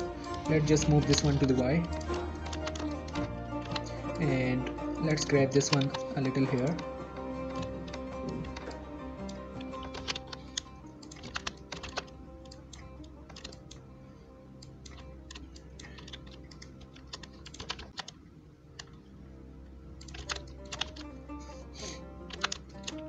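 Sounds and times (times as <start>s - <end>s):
quiet background music: 0.0s - 23.0s
keyboard keystrokes clicking: 0.3s - 4.0s, 5.5s - 13.8s, 14.8s - 18.2s, 20.0s - 21.1s, 22.3s - 23.0s.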